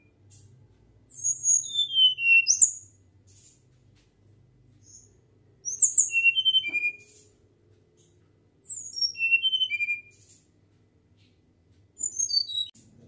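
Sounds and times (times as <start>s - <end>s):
bird whistling song: 1.1s - 3.0s, 4.8s - 7.3s, 8.7s - 10.3s, 12.0s - 12.8s.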